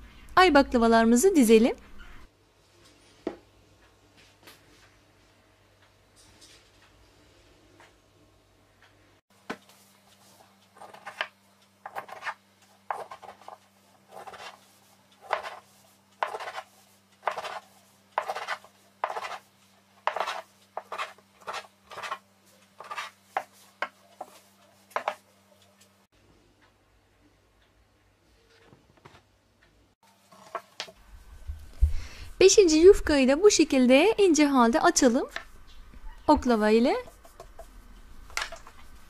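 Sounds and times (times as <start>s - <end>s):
glass rim cutting dough on board: 15.2s - 19.4s, 20.0s - 22.2s, 22.8s - 25.2s.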